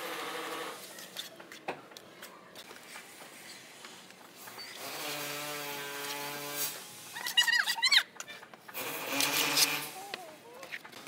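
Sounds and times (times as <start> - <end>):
trowel scraping mortar on wall: 8.7 - 10.2.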